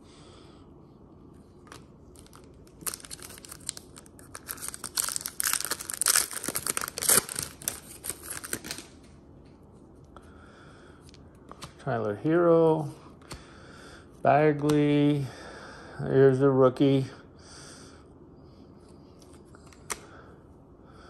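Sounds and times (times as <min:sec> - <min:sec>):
foil wrapper tearing and crinkling: 0:02.1 - 0:09.0.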